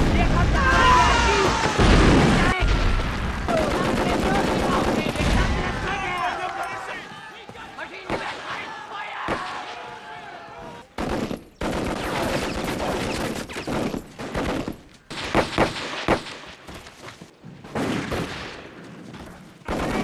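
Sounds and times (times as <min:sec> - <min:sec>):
loud gunshots: 0:00.0 - 0:06.2, 0:08.0 - 0:09.9, 0:10.9 - 0:16.6, 0:19.7 - 0:20.0
gunfire volleys: 0:01.5 - 0:06.0, 0:10.9 - 0:16.6, 0:19.7 - 0:20.0.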